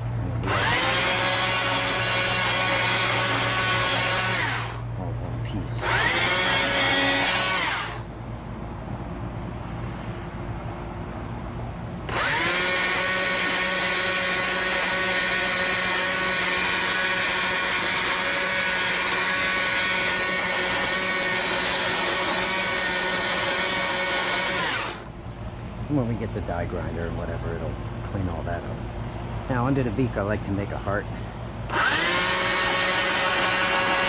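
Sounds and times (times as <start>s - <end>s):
power tool carving wood: 0.0s - 4.8s, 5.8s - 8.0s, 12.1s - 25.1s, 31.7s - 34.0s.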